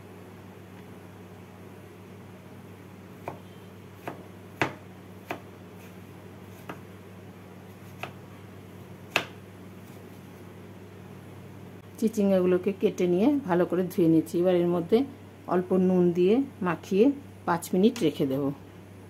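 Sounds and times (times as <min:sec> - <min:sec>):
knife chopping on wooden board: 0:03.2 - 0:06.8, 0:07.8 - 0:08.2, 0:09.1 - 0:09.4.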